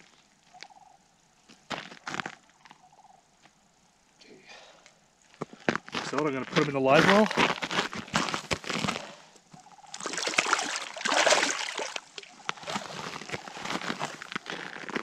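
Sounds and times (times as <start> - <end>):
water splashing and sloshing: 9.6 - 14.9.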